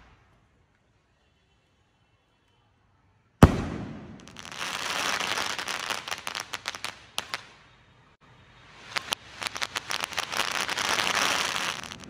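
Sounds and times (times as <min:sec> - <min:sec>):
firework bang: 0:03.4 - 0:04.6
firework crackling and pops: 0:03.4 - 0:07.6, 0:08.7 - 0:12.0.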